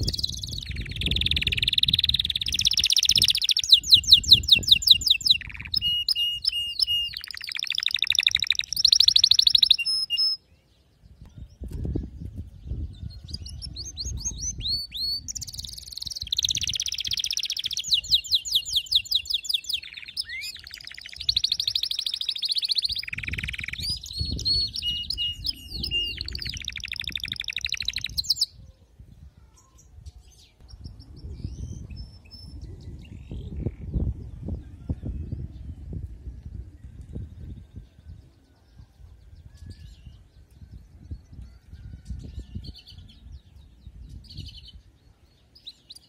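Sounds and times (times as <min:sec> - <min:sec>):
canary singing trills: 0:00.0 - 0:11.7, 0:12.6 - 0:28.8
faint bird chirps: 0:00.0 - 0:46.0.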